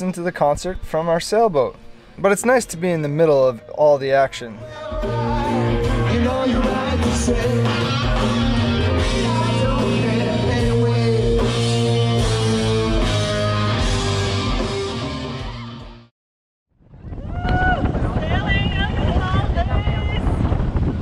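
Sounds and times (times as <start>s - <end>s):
person singing: 4.4s - 14.0s
live rock band playing: 4.7s - 16.1s.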